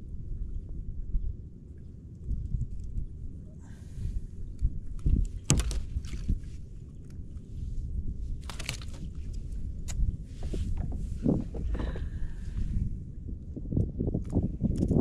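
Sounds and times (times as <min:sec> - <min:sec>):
steady low rumble: 0:00.0 - 0:15.0
knocks and rustles of landing net: 0:05.4 - 0:06.3, 0:08.4 - 0:09.1.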